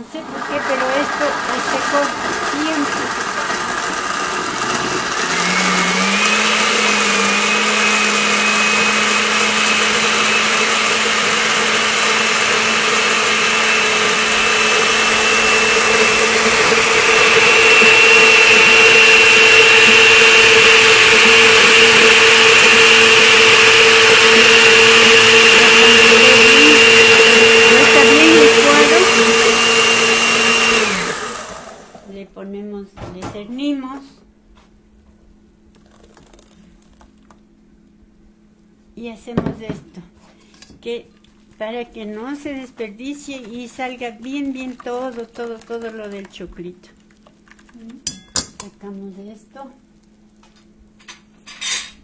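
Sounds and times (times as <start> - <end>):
blender motor running: 0.1 - 32.1.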